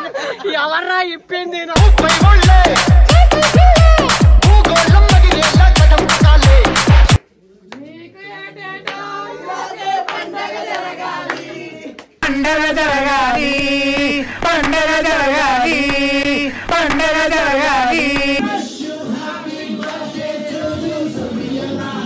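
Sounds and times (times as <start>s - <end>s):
quieter music: 1.8s - 7.2s, 12.2s - 18.4s
song with sung vocals: 1.8s - 7.2s, 8.2s - 22.0s.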